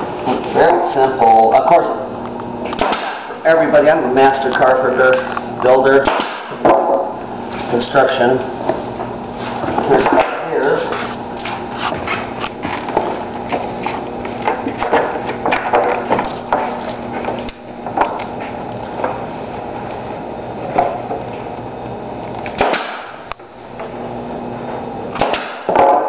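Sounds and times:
steady hum: 0:00.0 - 0:26.0
pneumatic nailer shots: 0:02.7 - 0:03.4, 0:06.0 - 0:07.0, 0:22.5 - 0:23.3, 0:25.1 - 0:26.0.

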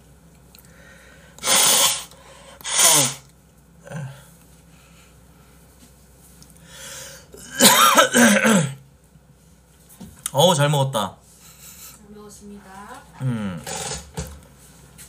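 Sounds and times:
man blowing his nose: 0:01.4 - 0:03.3.

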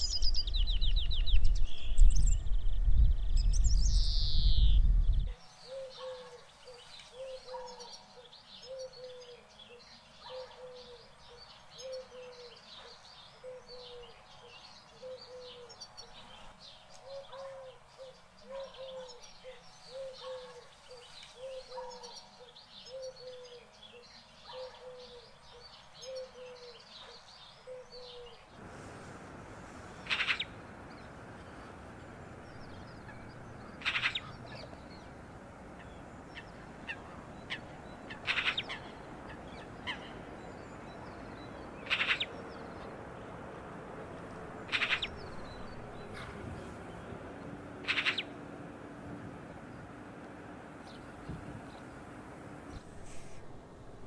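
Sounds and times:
birds chirping: 0:00.0 - 0:54.0
steady hiss: 0:28.6 - 0:32.9
sharp high bird calls: 0:32.6 - 0:40.4, 0:41.2 - 0:42.8, 0:44.6 - 0:46.4, 0:47.8 - 0:48.4.

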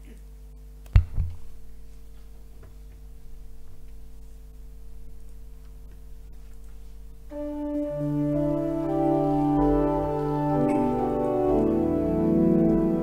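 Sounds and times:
faint steady hum: 0:00.0 - 0:13.0
organ playing sustained chords: 0:07.1 - 0:13.0.

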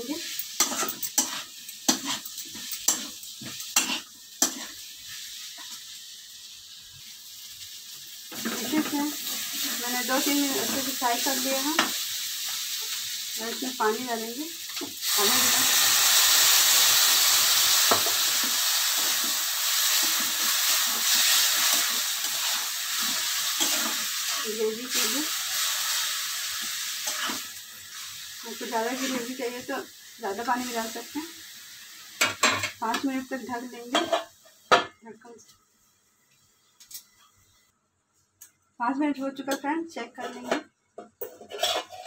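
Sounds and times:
food frying sizzle: 0:00.0 - 0:37.8
metal spatula scraping a pan: 0:00.2 - 0:04.8, 0:19.8 - 0:27.5, 0:41.2 - 0:42.0.

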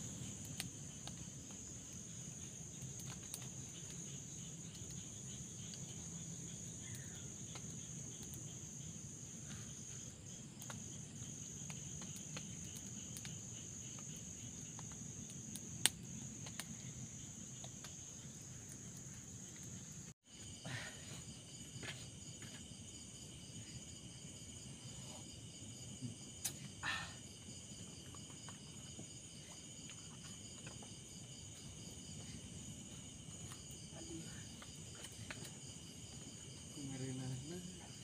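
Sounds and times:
crickets trilling: 0:00.0 - 0:38.0
small clicks and crackles: 0:00.2 - 0:06.0.

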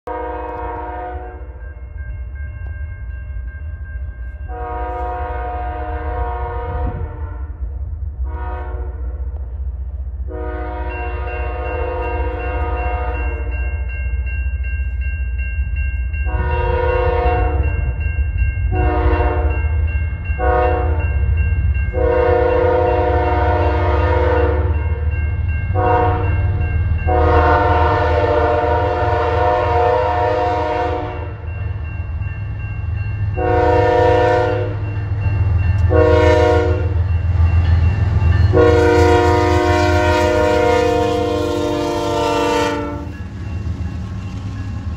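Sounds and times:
locomotive air horn blasts: 0:00.1 - 0:01.5, 0:04.5 - 0:07.6, 0:08.2 - 0:09.3, 0:10.3 - 0:13.5, 0:16.3 - 0:17.7, 0:18.7 - 0:19.5, 0:20.4 - 0:21.0, 0:22.0 - 0:24.7, 0:25.8 - 0:26.3, 0:27.1 - 0:31.4, 0:33.4 - 0:34.8, 0:35.9 - 0:37.0, 0:38.5 - 0:43.2.

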